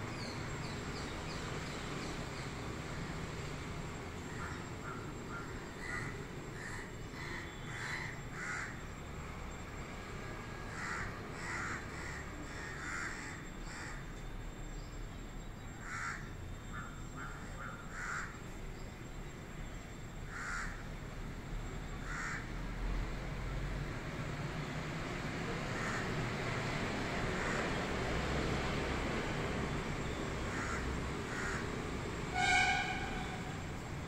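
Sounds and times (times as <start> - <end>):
crow cawing: 4.3 - 8.8, 10.7 - 14.0, 15.8 - 18.4, 20.3 - 20.8, 22.0 - 22.5, 25.7 - 26.2, 27.4 - 27.8, 30.5 - 33.6.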